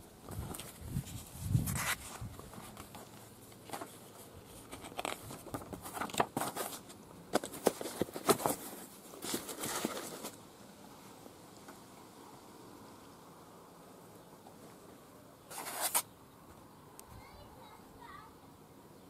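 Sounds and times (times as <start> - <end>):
paper pages rustling: 0.3 - 10.4, 15.5 - 16.1.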